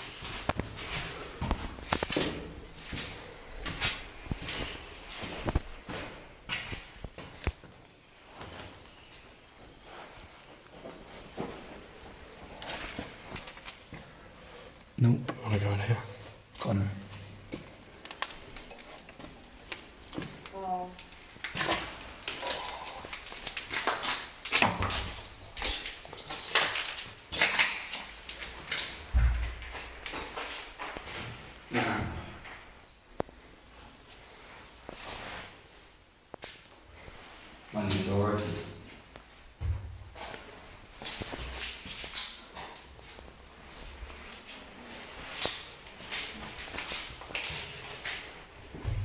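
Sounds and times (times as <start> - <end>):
footsteps crunching on debris: 23.0 - 31.5.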